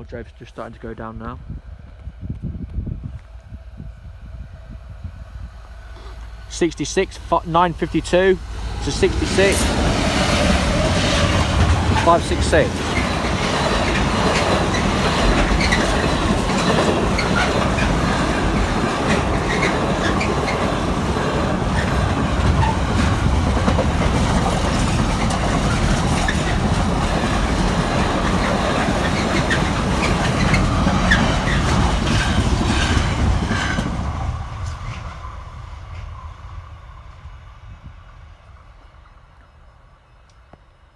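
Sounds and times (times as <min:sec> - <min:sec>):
train wheels clattering over rail joints: 0:08.1 - 0:34.0.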